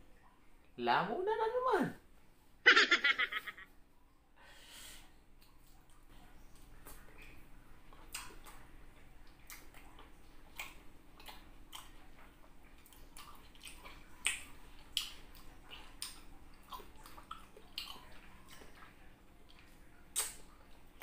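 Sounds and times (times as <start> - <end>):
mouth chewing with wet smacks: 5.4 - 21.0.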